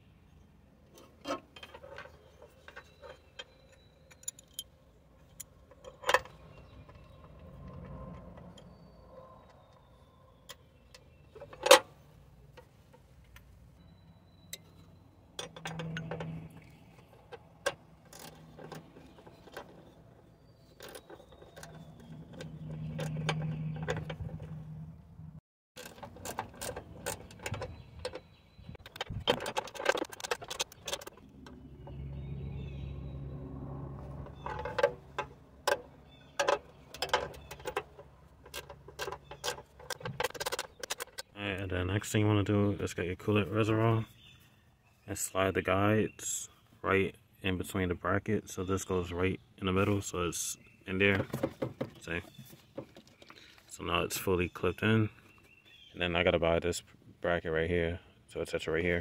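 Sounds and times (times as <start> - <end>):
metal clinks of tools: 1.6 - 6.3.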